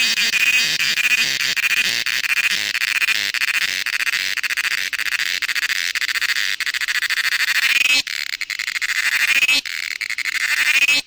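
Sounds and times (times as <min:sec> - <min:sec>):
cicada buzzing: 0:00.0 - 0:11.0.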